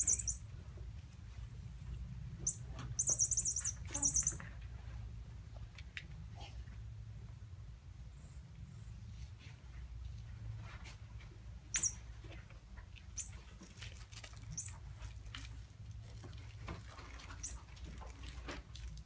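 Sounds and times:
short high squeaks: 2.4s - 4.4s, 11.7s - 12.1s.

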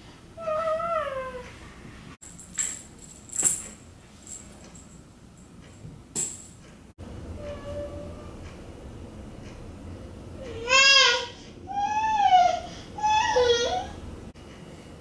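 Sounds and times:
metallic toy jingling: 2.2s - 5.0s
baby wailing: 10.6s - 14.0s.

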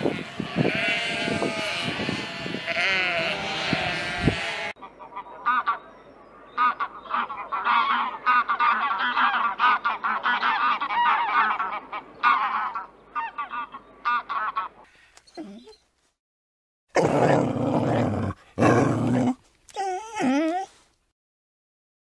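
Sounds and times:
flamingos calling: 6.6s - 14.8s.

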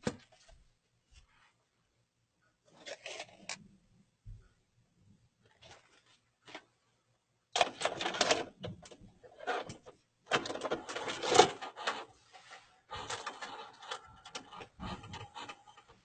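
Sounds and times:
tape deck mechanical clatter: 7.6s - 12.1s, 12.9s - 16.0s.

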